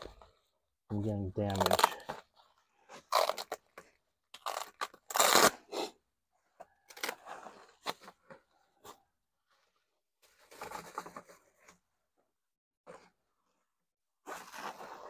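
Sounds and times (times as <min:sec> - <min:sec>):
tape peeling off: 0:01.5 - 0:02.0, 0:03.0 - 0:05.6
bubble wrap crinkling and crackling: 0:01.5 - 0:02.1.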